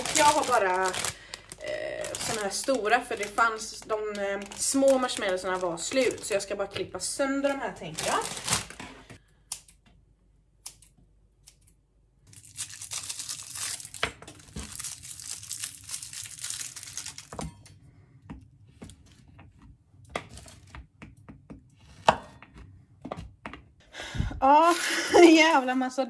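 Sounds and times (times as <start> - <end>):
sweet wrappers crinkling: 0.0 - 9.1, 12.3 - 17.7.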